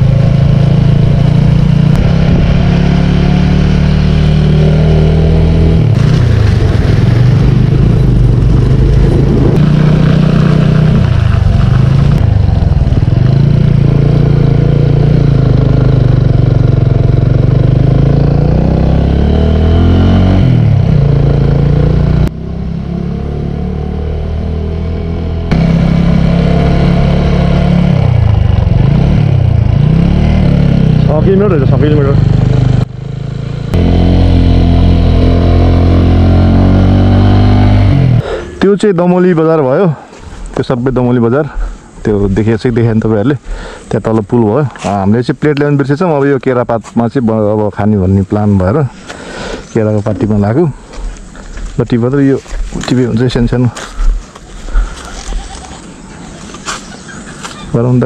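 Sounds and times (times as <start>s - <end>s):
motorcycle engine revving: 0.0s - 38.7s.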